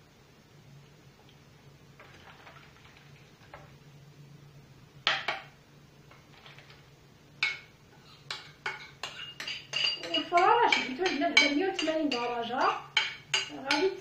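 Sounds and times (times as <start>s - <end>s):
glass bowl clinking: 8.3s - 14.0s.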